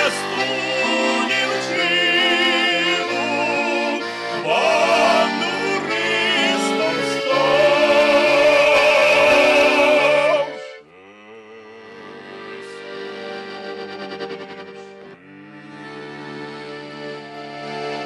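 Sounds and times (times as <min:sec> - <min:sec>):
male vocal quartet singing: 0:00.0 - 0:12.9
button accordion: 0:00.0 - 0:18.0.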